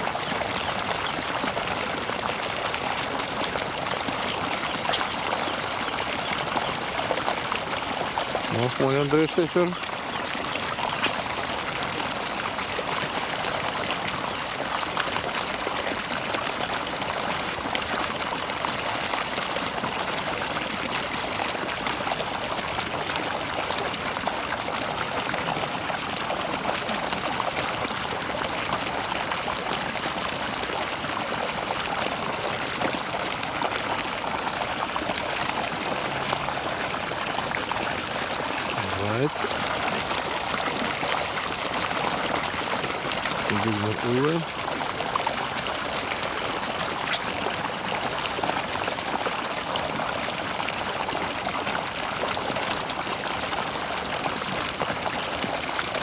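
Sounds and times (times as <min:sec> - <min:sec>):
water running: 0:04.5 - 0:14.6, 0:38.7 - 0:39.6, 0:43.3 - 0:44.5.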